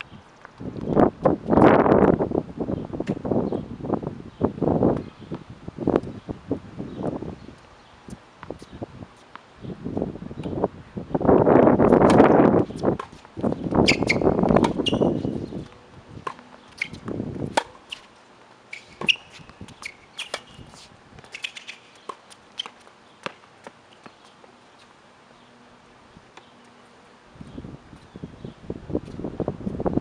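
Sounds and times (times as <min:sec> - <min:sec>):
wind buffeting microphone: 0:00.0 - 0:17.7, 0:27.3 - 0:30.0
birds chirping: 0:02.7 - 0:05.4, 0:06.1 - 0:08.9, 0:12.6 - 0:15.8, 0:16.4 - 0:17.0, 0:18.7 - 0:28.7
tennis ball bouncing on hard court: 0:12.0 - 0:18.1, 0:18.7 - 0:24.2.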